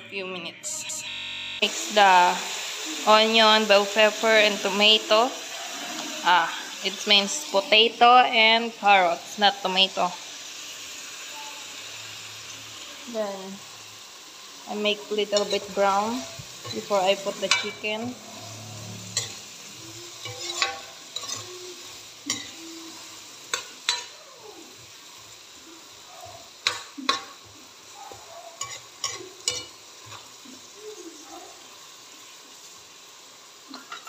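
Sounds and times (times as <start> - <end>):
vegetables sizzling in oil: 0.0 - 34.0
metal ladle scraping a wok: 15.0 - 22.6.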